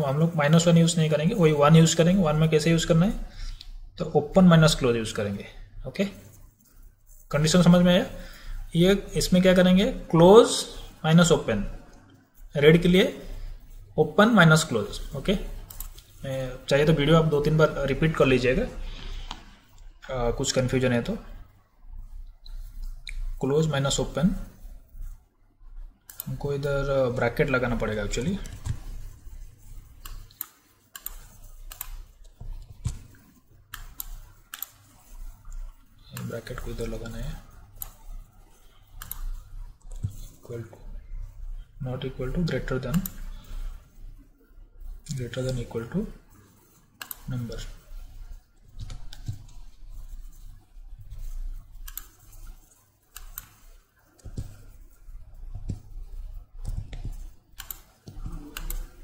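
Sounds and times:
computer mouse clicking: 14.5s - 19.9s, 22.2s - 23.4s, 26.0s - 41.4s, 42.3s - 44.3s, 44.9s - 59.0s
keyboard keystrokes: 55.5s - 58.9s.

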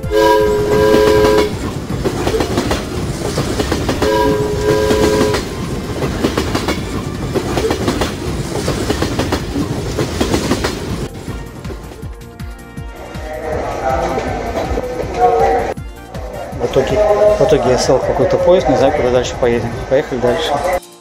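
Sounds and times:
train horn chord: 0.0s - 1.7s, 3.8s - 5.8s, 11.1s - 19.3s
train wheels clattering on rails: 0.0s - 12.4s.

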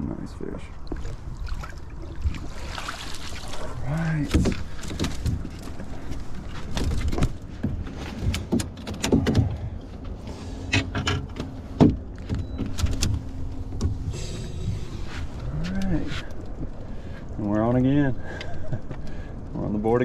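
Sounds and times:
wind rumble on microphone: 12.4s - 20.0s.

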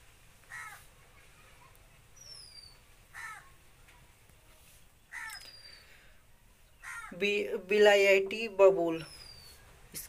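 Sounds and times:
crow cawing faintly: 0.4s - 0.9s, 3.1s - 3.6s, 5.1s - 5.6s, 6.8s - 7.2s.

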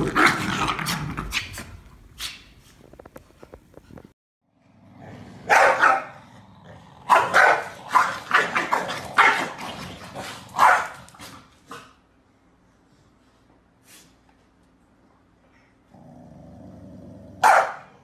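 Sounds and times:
dog barking: 5.5s - 6.2s, 7.1s - 9.6s, 10.6s - 11.0s, 17.4s - 18.0s.

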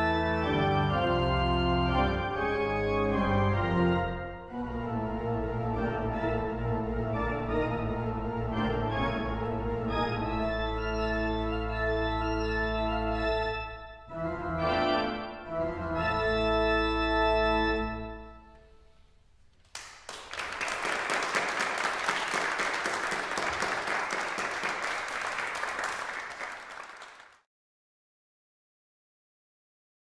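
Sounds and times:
pipe organ chords: 0.0s - 18.9s
audience applause: 19.7s - 27.4s.

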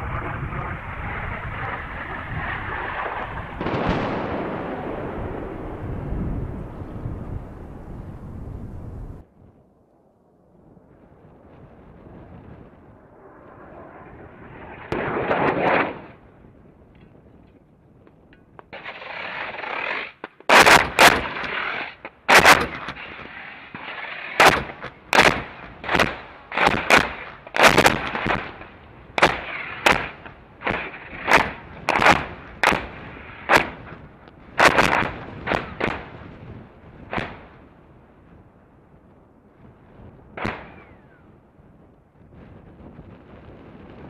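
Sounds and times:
bomb blasts: 0.0s - 9.2s, 12.0s - 16.3s
steady rushing noise: 0.0s - 9.3s, 11.1s - 16.4s.

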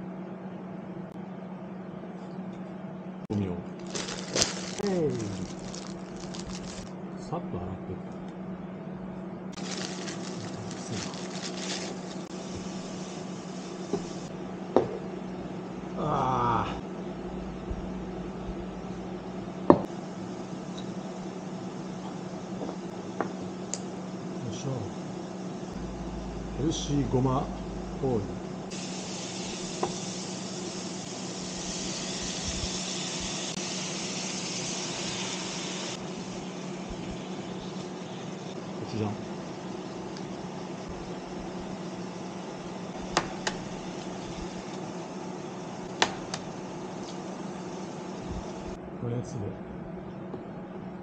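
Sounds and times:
low hum: 0.0s - 22.1s, 23.7s - 33.3s
sprouts rustling into a pan: 3.8s - 6.9s, 9.6s - 12.3s
food sizzling in a pan: 9.6s - 14.3s, 28.7s - 38.5s.

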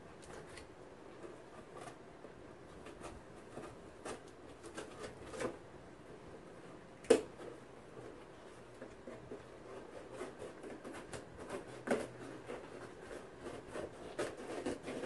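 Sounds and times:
box tape scraping and clicks: 9.2s - 15.0s.

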